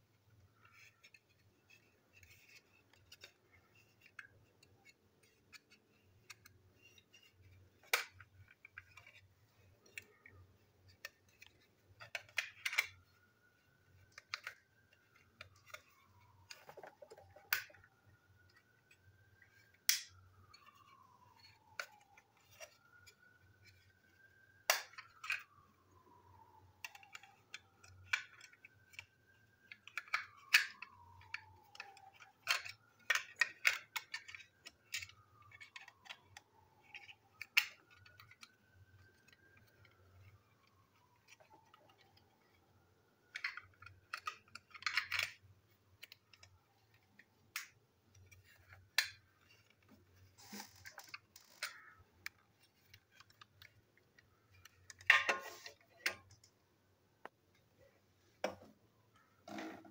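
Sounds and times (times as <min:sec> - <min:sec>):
plastic parts clicking: 0:00.2 - 0:56.6.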